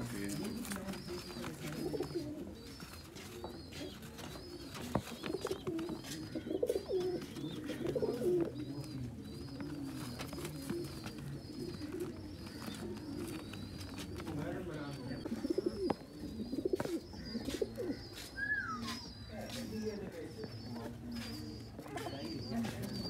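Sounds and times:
pigeons cooing: 0.0 - 23.0
faint high chirp: 18.2 - 19.7.

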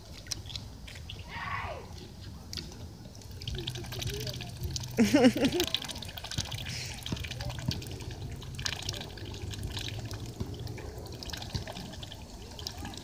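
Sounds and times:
goose dabbling in water: 2.4 - 13.0.

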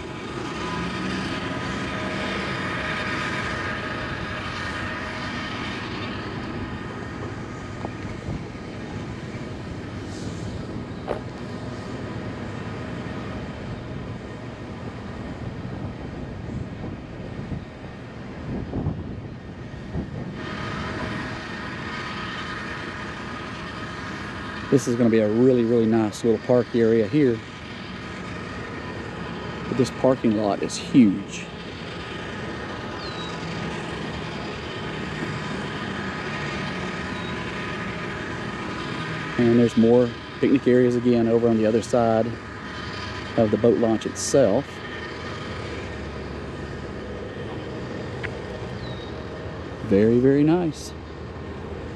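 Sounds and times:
distant engine drone: 0.0 - 51.9
wind buffeting microphone: 2.3 - 25.0.

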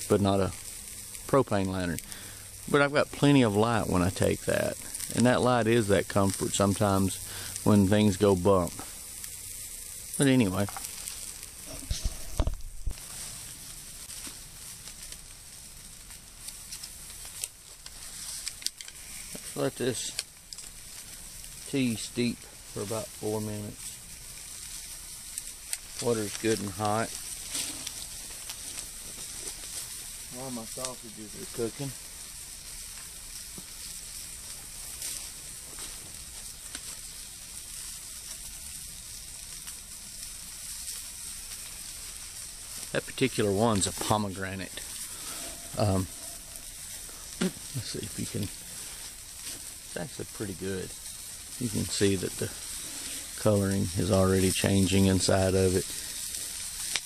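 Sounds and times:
sausages sizzling: 0.0 - 57.0
small pops: 8.6 - 21.7, 23.8 - 31.0, 32.0 - 43.0, 55.9 - 57.0.

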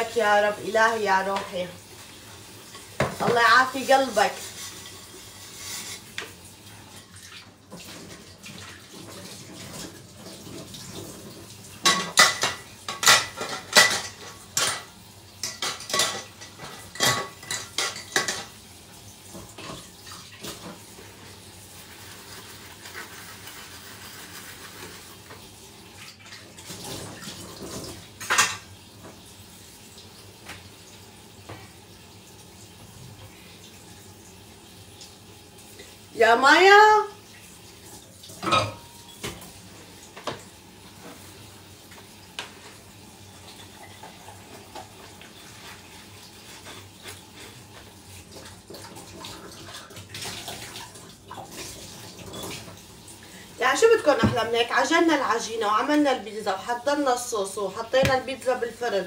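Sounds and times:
dishes and cutlery clattering: 11.8 - 18.6, 26.9 - 28.7, 38.4 - 39.4
tap running: 58.0 - 58.4.

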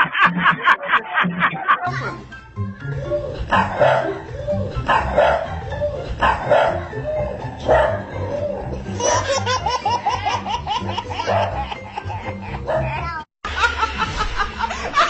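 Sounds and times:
rapid laughter: 0.0 - 1.9, 8.1 - 15.0
background music with bass: 0.0 - 15.0
dog barking: 3.5 - 4.2, 4.9 - 5.5, 6.2 - 6.9, 7.6 - 8.1, 11.2 - 11.6, 12.7 - 13.0.

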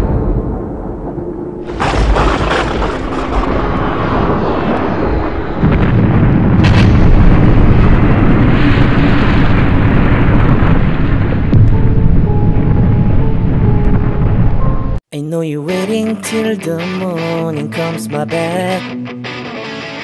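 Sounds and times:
loud explosion burst: 0.0 - 14.7
deep rumbling boom: 0.0 - 15.0.

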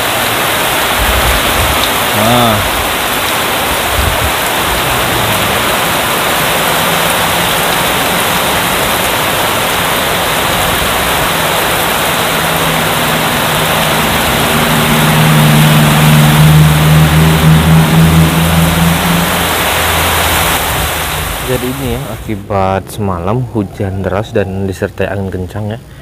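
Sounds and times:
strong wind: 0.0 - 24.7
heavy rain pouring: 0.0 - 26.0
low droning hum: 3.8 - 26.0.

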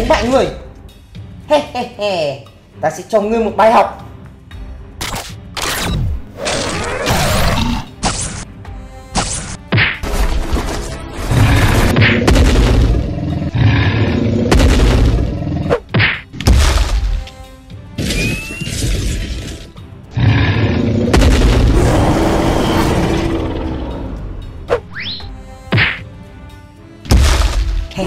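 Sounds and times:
background music: 0.0 - 28.0
heavy booms and impacts: 11.3 - 15.6, 20.2 - 22.4.

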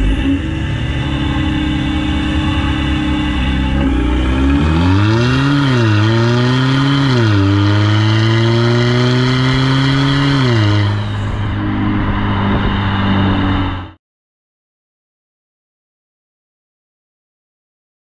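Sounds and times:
diesel car engine accelerating: 0.0 - 14.0.

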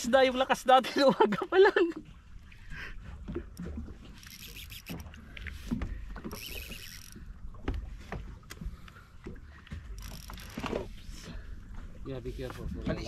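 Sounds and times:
water slapping a hull: 0.0 - 13.0
knocks and clicks of tackle: 7.6 - 10.9.

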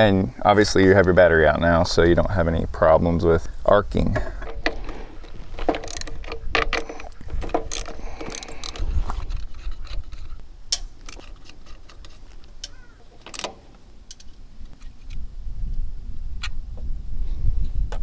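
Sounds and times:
clicks and clinks of hardware: 5.6 - 14.4.

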